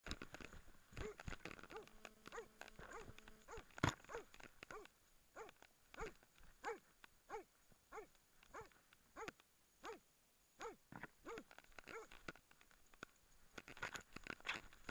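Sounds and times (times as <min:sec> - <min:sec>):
dog barking: 0:01.0 - 0:10.0, 0:10.6 - 0:12.2.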